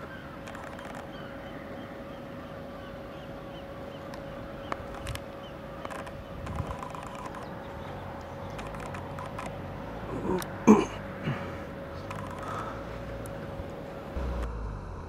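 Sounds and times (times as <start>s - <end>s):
faint steady hum: 0.0s - 15.0s
small clicks: 0.4s - 1.2s, 4.0s - 9.6s, 12.0s - 13.8s
person clearing throat: 10.1s - 11.5s.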